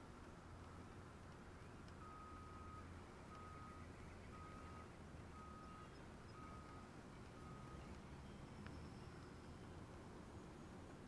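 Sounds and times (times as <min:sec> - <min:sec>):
low steady hum: 0:00.0 - 0:11.0
reversing alarm beeping: 0:02.0 - 0:09.6.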